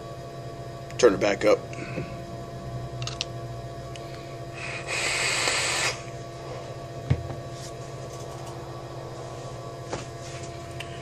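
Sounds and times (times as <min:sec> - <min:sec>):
vape coil hissing and sizzling: 0:04.6 - 0:06.1.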